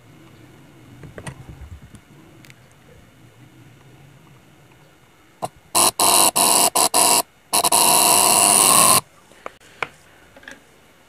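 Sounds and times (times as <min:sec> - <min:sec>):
electromagnetic coil buzzing: 0:05.4 - 0:09.0.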